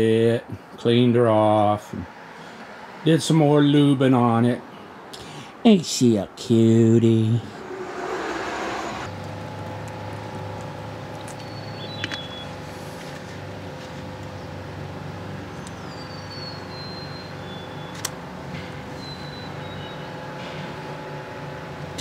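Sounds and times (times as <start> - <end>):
low mechanical hum: 6.8 - 22.0
faint high whistles: 7.4 - 9.1, 15.7 - 18.0, 19.0 - 20.1
small click: 17.9 - 18.2.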